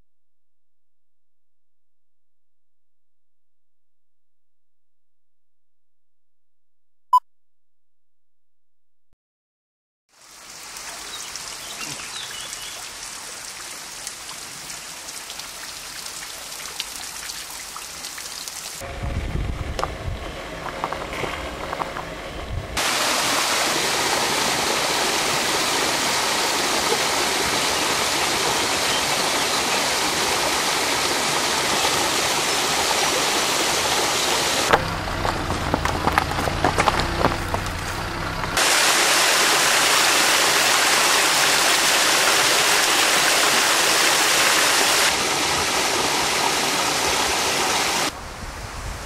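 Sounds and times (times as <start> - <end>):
water rushing over waterfall: 22.8 - 34.8, 38.6 - 48.2.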